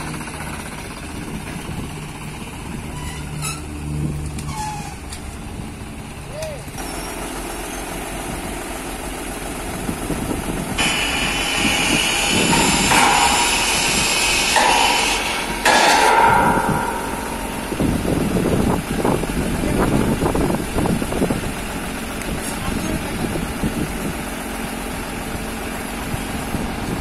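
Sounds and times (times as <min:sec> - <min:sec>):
tractor engine under load: 0:00.0 - 0:27.0
metal wheels screeching on ramps: 0:02.7 - 0:05.4, 0:06.4 - 0:08.0, 0:10.8 - 0:18.7
metal clanks: 0:10.8 - 0:20.0.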